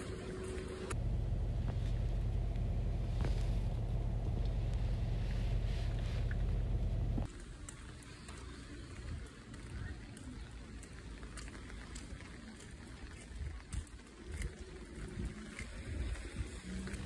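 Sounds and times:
low rumble inside car: 0:00.0 - 0:07.3.

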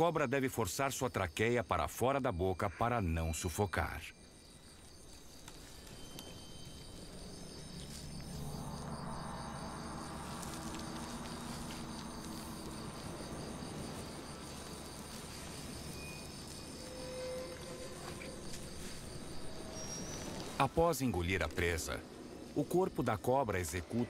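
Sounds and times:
crickets and insects chirping: 0:00.0 - 0:24.0
low hum: 0:04.7 - 0:20.7.

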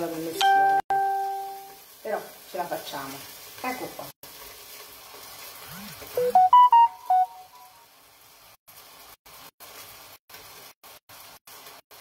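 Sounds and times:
fish sizzling in a grill pan: 0:00.0 - 0:12.0
electronic notification chime: 0:00.4 - 0:01.7, 0:05.8 - 0:07.7.

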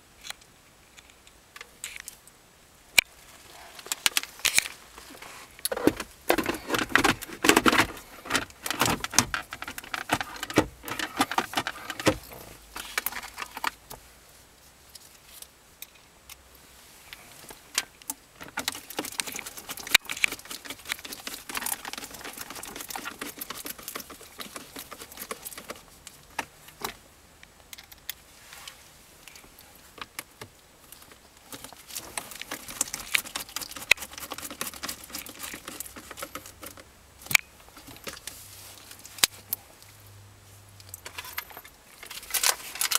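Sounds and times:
plastic trim clicking and rattling: 0:05.7 - 0:13.8.

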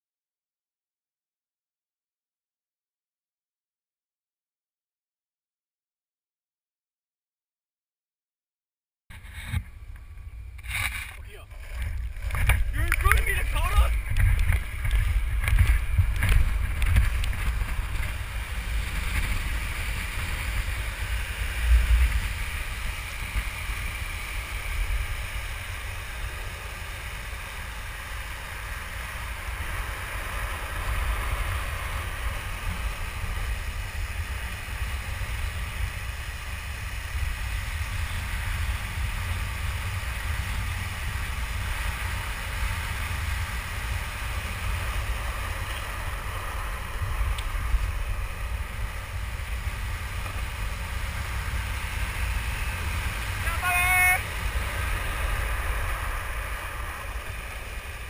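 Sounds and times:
longboard wheels rolling on asphalt: 0:09.1 - 0:58.0
wind buffeting microphone: 0:09.2 - 0:53.6.

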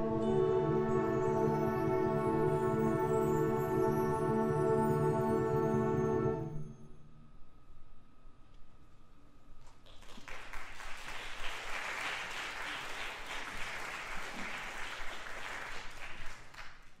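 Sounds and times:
audience applause: 0:09.9 - 0:17.0.

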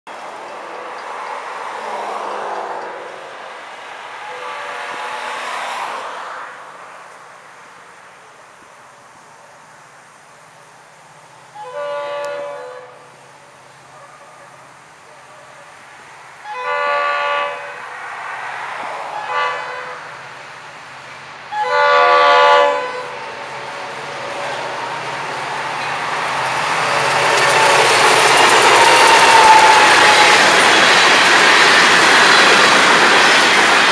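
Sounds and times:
train rumbling: 0:00.1 - 0:33.9
locomotive air horn blasts: 0:04.2 - 0:05.7, 0:11.6 - 0:13.2, 0:16.4 - 0:17.9, 0:19.0 - 0:20.2, 0:21.5 - 0:24.7.

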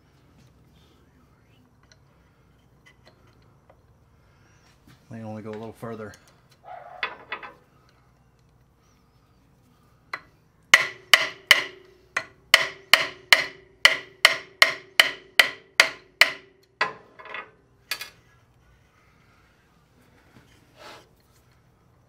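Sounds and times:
hammer tapping on metal punch: 0:10.1 - 0:17.0.

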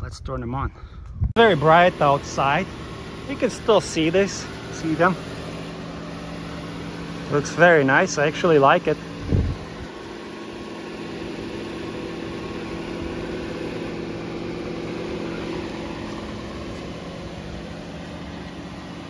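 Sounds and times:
car engine idling: 0:00.8 - 0:19.0.

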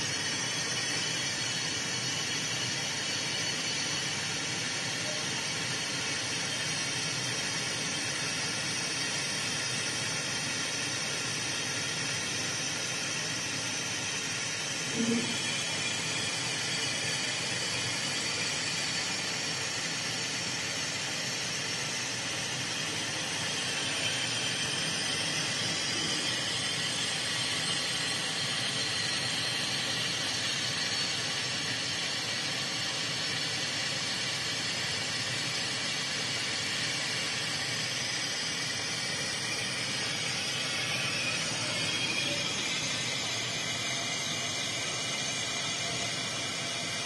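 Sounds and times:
faint high whine: 0:00.0 - 0:47.0
machine fans: 0:00.0 - 0:47.0
air hissing from nozzle: 0:22.2 - 0:47.0.

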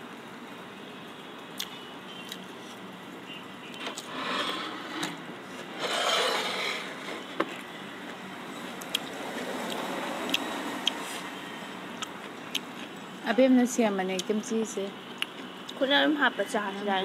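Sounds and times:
people chewing food: 0:07.0 - 0:13.0, 0:15.1 - 0:15.8.

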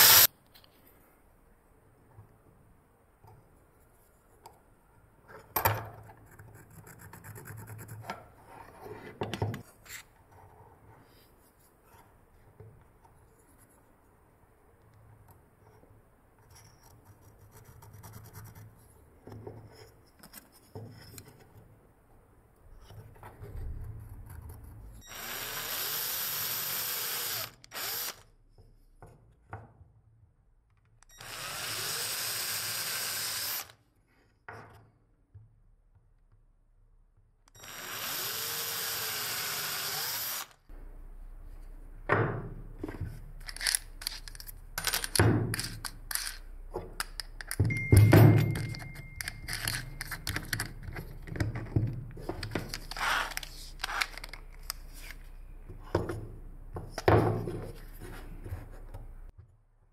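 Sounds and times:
cordless drill boring into wood: 0:00.0 - 0:00.3, 0:25.1 - 0:28.2, 0:31.1 - 0:33.8, 0:37.6 - 0:40.6
pencil scratching: 0:06.2 - 0:08.0, 0:16.6 - 0:18.9
drill chuck clicks and knocks: 0:43.4 - 0:54.8.

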